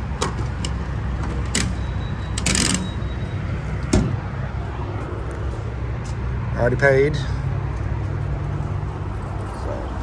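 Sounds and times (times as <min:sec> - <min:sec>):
vehicle engines rumbling: 0:00.0 - 0:10.0.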